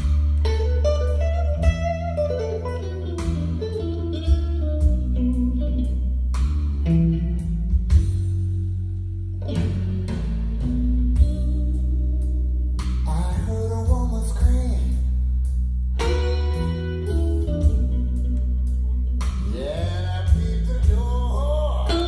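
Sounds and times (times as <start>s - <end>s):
blues music over loudspeakers: 0.0s - 22.0s
plucked guitar melody: 0.0s - 22.0s
sustained bass line: 0.0s - 22.0s.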